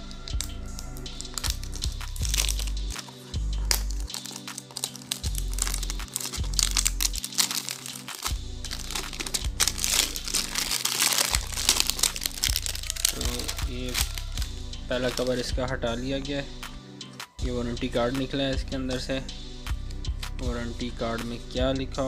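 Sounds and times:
background music with deep bass: 0.0 - 22.0
plastic wrap crinkling: 0.4 - 14.5.

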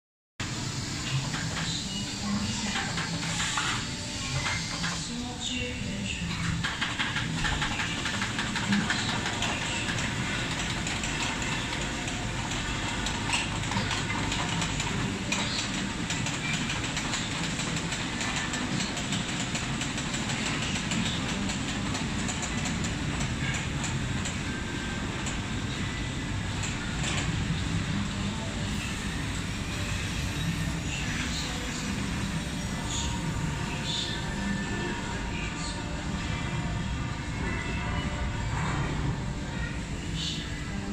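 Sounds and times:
faint clicks and rattling: 6.3 - 24.4.

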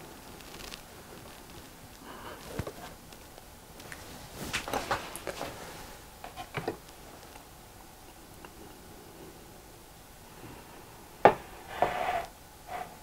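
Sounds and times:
light clicks and rustles: 0.2 - 7.5
plate knocking on wooden table: 11.2 - 12.0.

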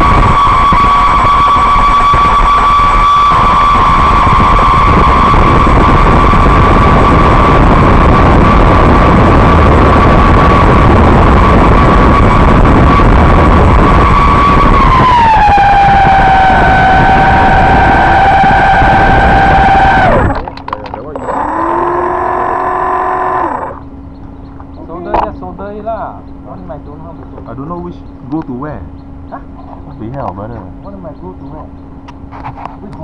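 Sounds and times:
model aircraft motor whine: 0.0 - 20.5, 21.2 - 23.9
rushing noise: 0.0 - 23.9.

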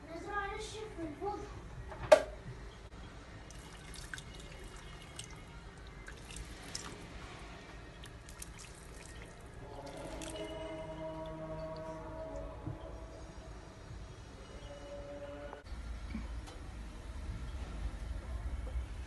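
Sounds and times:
water pouring from kettle: 3.5 - 7.1, 8.0 - 10.6.

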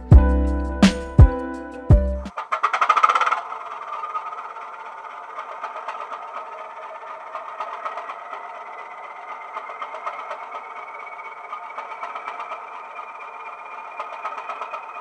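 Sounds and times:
faint rising whine: 3.4 - 15.0.

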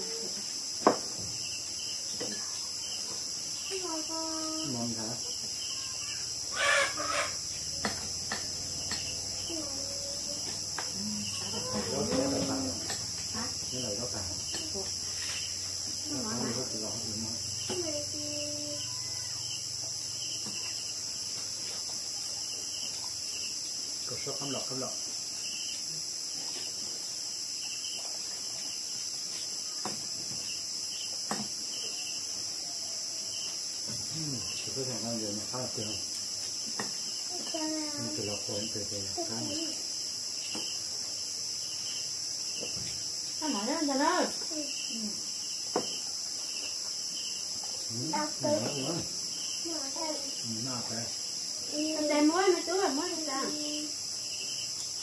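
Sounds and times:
crickets chirping: 0.0 - 55.0
night insects chorus: 0.0 - 55.0.

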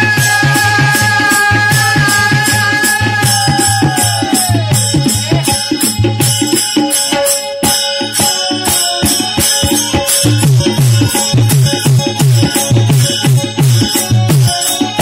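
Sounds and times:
drum with bending bass strokes: 0.0 - 6.7.

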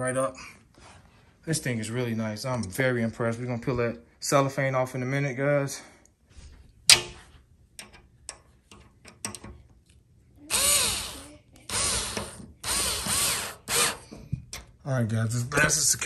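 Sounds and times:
power drill driving screw into metal: 10.5 - 14.0.

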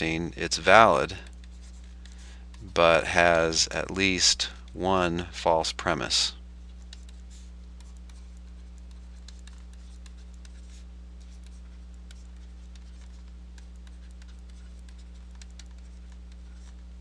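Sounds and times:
low electrical hum: 0.0 - 17.0
faint ticks and clicks: 5.8 - 16.9.

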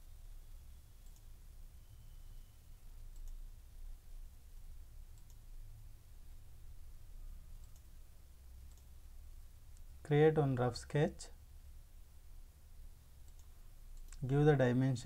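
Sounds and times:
computer mouse clicks: 1.0 - 1.3, 3.1 - 3.4, 5.1 - 5.5, 7.6 - 8.0, 8.6 - 9.9, 13.2 - 14.3.

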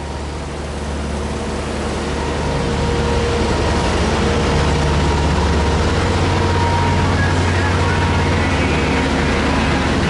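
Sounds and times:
diesel truck engine idling: 0.0 - 10.0.

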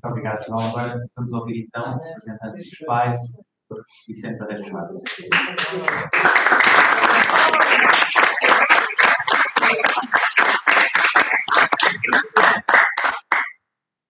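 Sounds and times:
audience applauding: 5.0 - 13.6.

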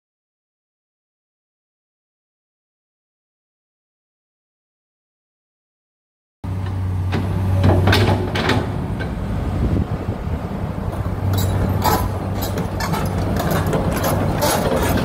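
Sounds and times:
excavator diesel engine running: 6.5 - 15.0.

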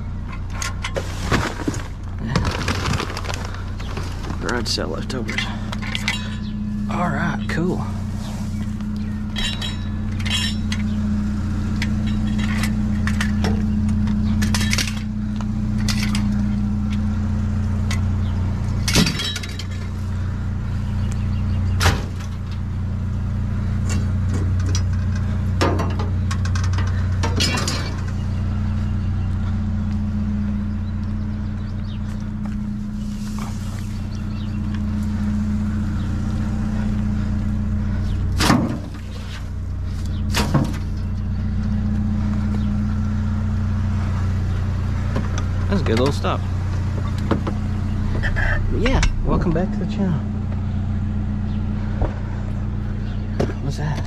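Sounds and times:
pickup truck engine idling: 0.0 - 54.0
metal items clanking: 0.5 - 6.6, 9.3 - 11.0, 11.8 - 15.1, 18.8 - 20.0, 24.6 - 28.2.

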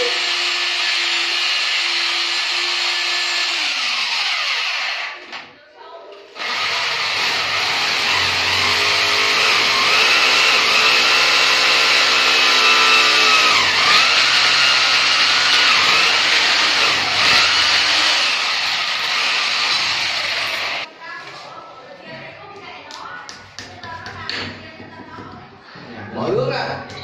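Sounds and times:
electric drill boring into tile: 0.0 - 5.3, 6.4 - 20.9.

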